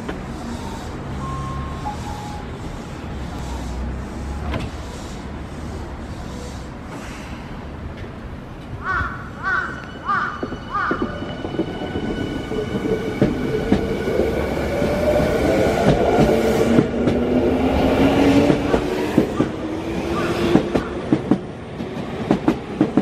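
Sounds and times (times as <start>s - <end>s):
electric train humming: 9.4s - 23.0s.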